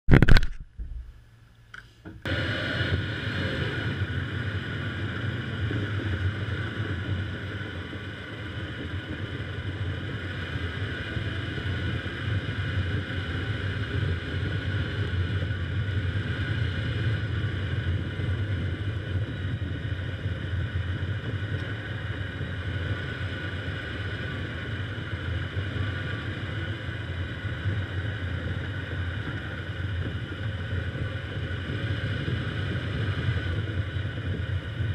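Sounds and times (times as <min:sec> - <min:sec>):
camera handling noise: 0:00.1 - 0:00.9
car engine and tyre noise: 0:00.1 - 0:34.9.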